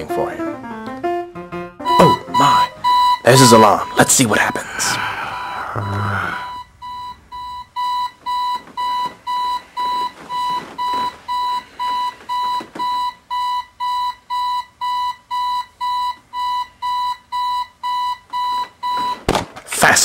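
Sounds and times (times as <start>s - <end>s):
digital alarm clock beeping: 1.8s - 19.2s.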